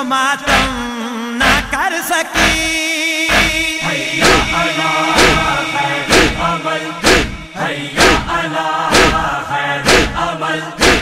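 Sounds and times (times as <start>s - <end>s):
men chanting together: 0.4s - 11.0s
chest beating in unison: 2.4s - 11.0s.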